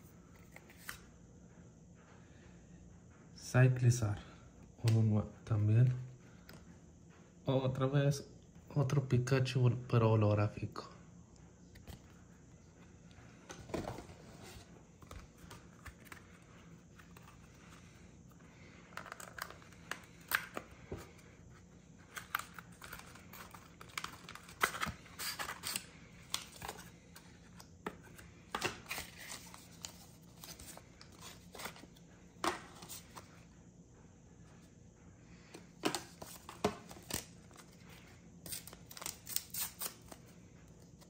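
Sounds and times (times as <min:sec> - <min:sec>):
cards being handled: 0:00.3 - 0:01.1, 0:13.3 - 0:33.4, 0:35.5 - 0:41.0.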